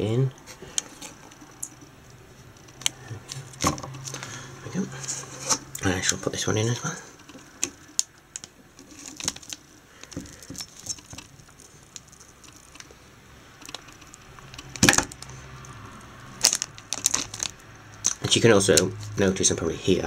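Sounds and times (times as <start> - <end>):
plastic clicks and rattles: 16.4 - 18.2.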